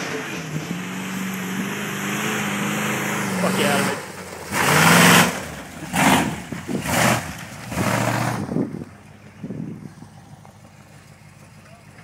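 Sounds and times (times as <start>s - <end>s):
truck engine revving hard: 0.0s - 8.9s.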